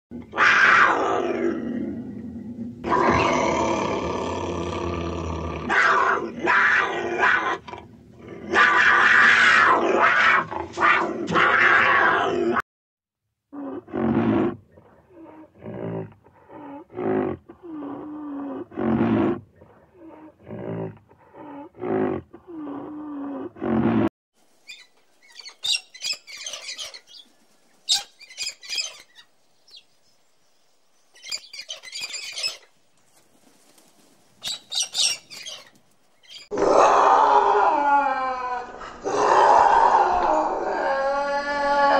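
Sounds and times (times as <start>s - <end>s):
cockatoo high calls: 24.6s - 29.8s, 34.4s - 36.6s.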